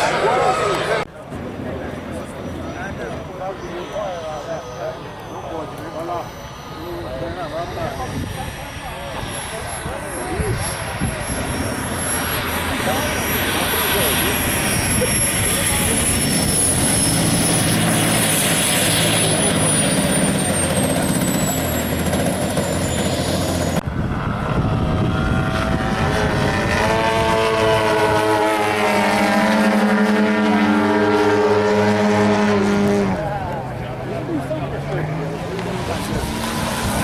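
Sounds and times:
model jet engine whine: 0.0s - 32.6s
model plane propeller engines droning: 0.0s - 37.0s.

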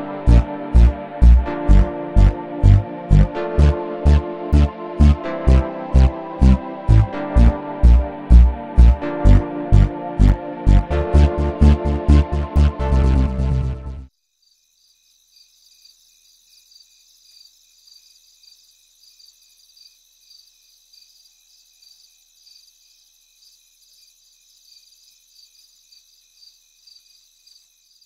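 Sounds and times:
crickets chirping: 14.1s - 28.0s.

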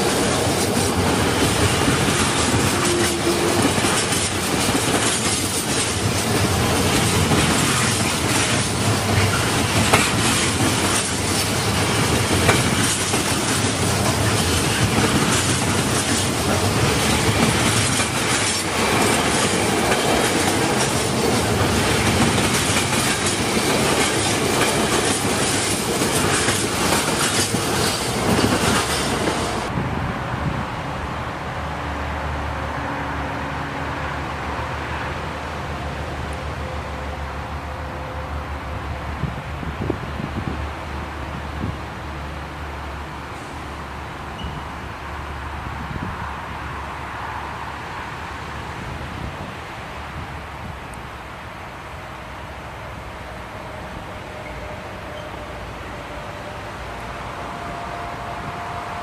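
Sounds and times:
train wheels clattering over rail joints: 0.0s - 29.7s.

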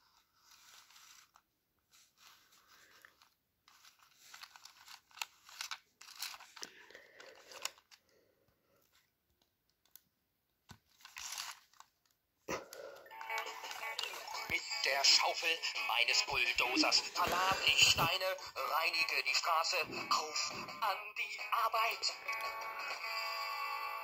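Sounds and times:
plastic toy rustling and scraping: 0.0s - 8.1s, 10.7s - 12.1s, 13.3s - 18.7s.

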